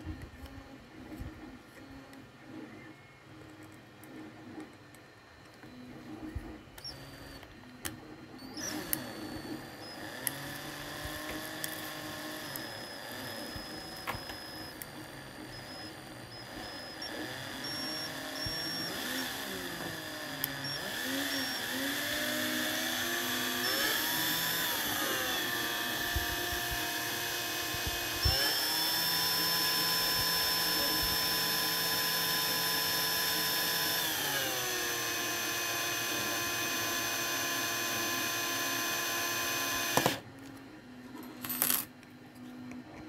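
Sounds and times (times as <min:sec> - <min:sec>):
drill motor whirring: 0:03.4 - 0:41.8.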